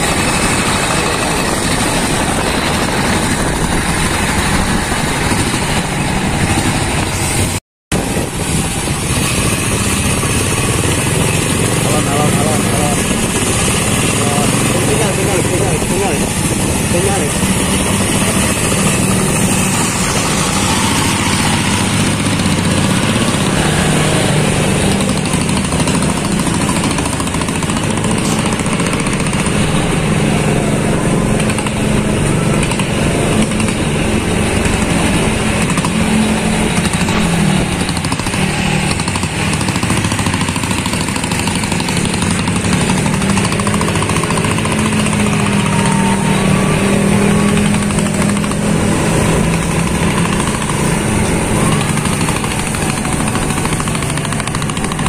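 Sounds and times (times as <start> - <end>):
wind noise: 0.0 - 42.8
motorcycle engine running: 0.0 - 55.0.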